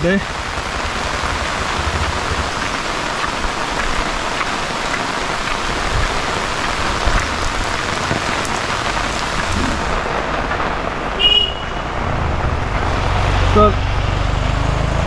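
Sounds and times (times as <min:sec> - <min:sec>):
heavy rain falling: 0:00.0 - 0:15.0.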